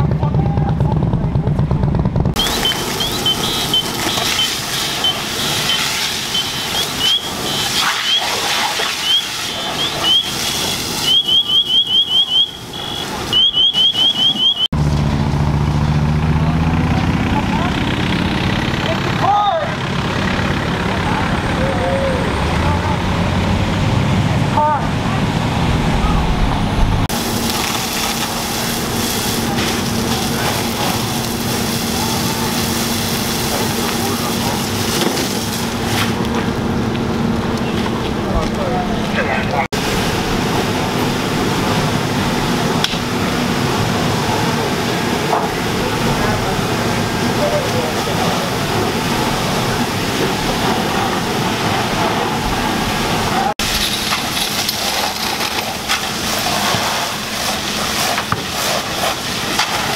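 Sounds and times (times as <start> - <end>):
low engine rumble: 0.0 - 59.9
car alarm chirping: 2.4 - 8.4, 9.0 - 14.7
fire hose spraying water: 2.4 - 25.8, 27.0 - 59.9.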